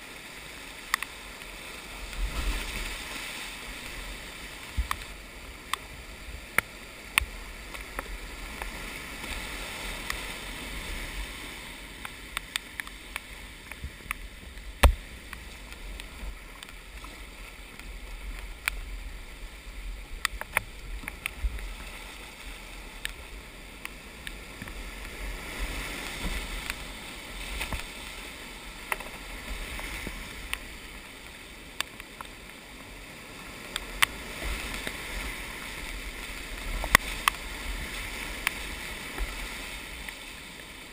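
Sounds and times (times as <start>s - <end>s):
whitewater rushing over rocks: 0.0s - 40.9s
sharp knocks and splashes: 14.7s - 16.8s.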